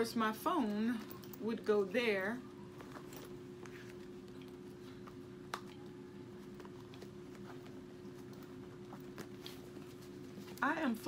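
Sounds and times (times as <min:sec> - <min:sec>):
steady low hum: 0:00.0 - 0:11.0
handbag rustles and clicks: 0:02.7 - 0:10.9.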